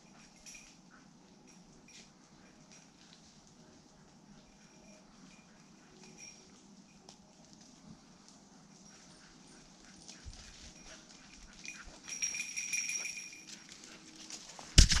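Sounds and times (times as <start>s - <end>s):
dry leaves rustling underfoot: 9.8s - 15.0s.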